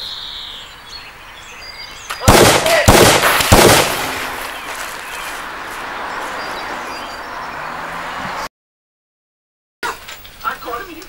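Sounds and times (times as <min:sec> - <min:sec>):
outdoor background hiss: 0:09.8 - 0:11.0.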